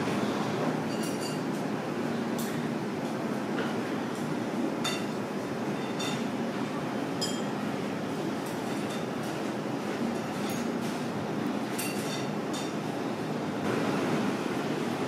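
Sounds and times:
restaurant background rumble: 0.0s - 15.0s
tableware clinking: 0.9s - 1.5s, 4.8s - 5.2s, 5.8s - 6.3s, 7.2s - 7.6s, 11.7s - 12.8s.

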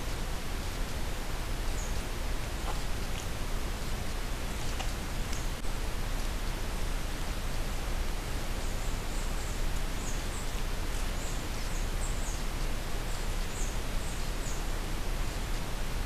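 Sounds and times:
microphone hiss: 0.0s - 16.0s
small bird chirping: 1.6s - 5.6s, 8.6s - 14.7s.

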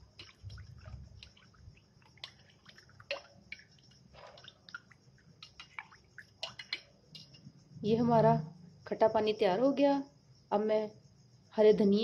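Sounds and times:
liquid sloshing: 0.0s - 7.4s
spoon clicking against bowl: 5.4s - 5.8s, 6.4s - 7.4s.

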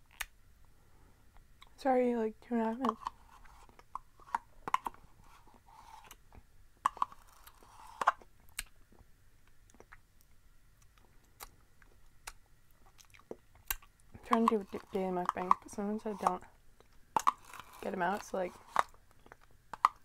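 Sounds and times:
wet mouth eating sounds: 7.9s - 10.1s, 10.8s - 17.6s.

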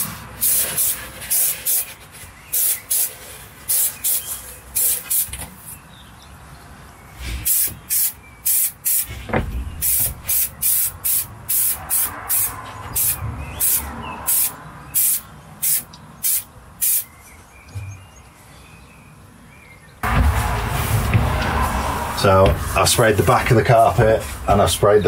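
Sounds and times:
aerosol spray hissing bursts: 0.0s - 1.9s, 2.5s - 5.3s, 7.4s - 9.1s, 9.8s - 17.1s.

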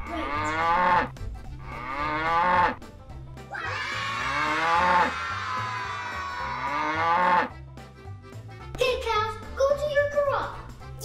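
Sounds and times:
cow mooing: 0.0s - 2.9s, 4.2s - 5.2s, 6.6s - 7.6s
background music: 0.0s - 11.0s.

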